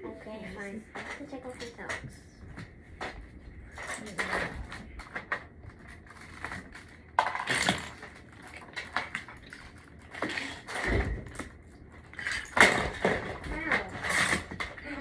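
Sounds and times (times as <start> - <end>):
plastic bricks clattering and scraping: 3.8 - 15.0.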